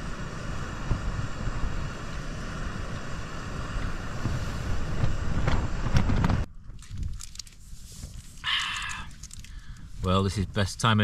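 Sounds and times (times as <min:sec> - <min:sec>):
wind buffeting microphone: 0:00.0 - 0:07.2
small rustles and clicks: 0:05.4 - 0:09.9.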